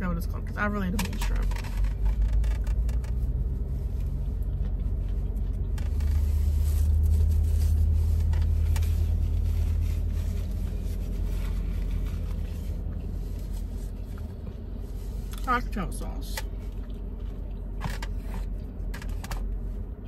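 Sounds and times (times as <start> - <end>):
low vehicle rumble: 0.0 - 20.0.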